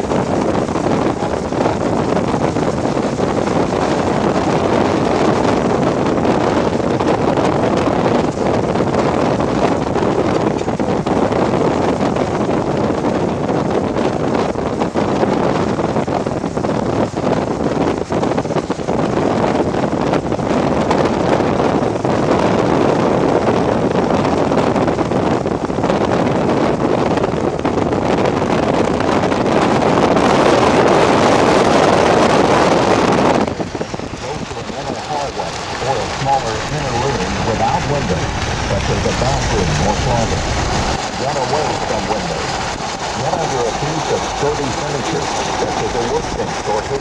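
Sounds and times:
strong wind buffeting microphone: 0.0 - 47.0.

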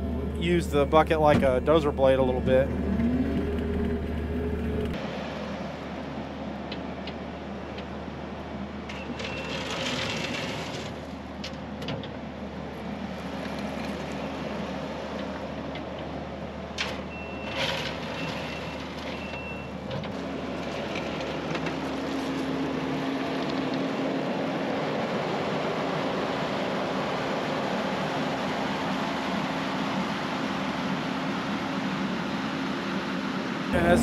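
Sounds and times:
diesel engine running: 0.0 - 34.0
backup alarm beeps: 18.2 - 19.7.

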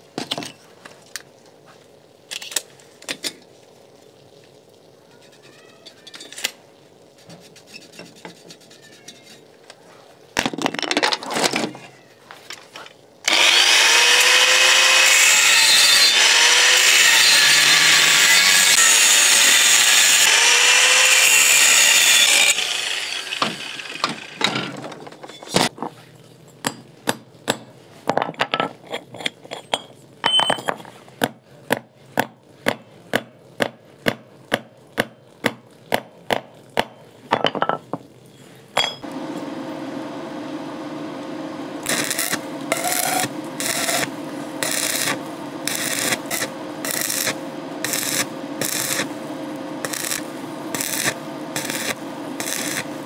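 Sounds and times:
angle grinder cutting steel: 13.3 - 24.6, 41.8 - 53.0
low hum: 39.0 - 53.0.

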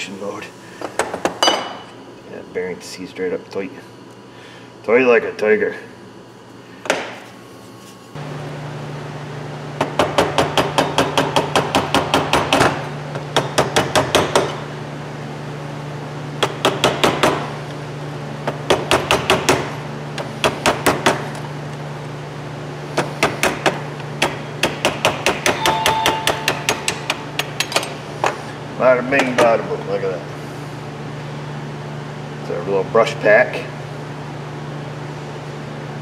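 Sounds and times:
hammer tapping on steel: 24.2 - 27.8.

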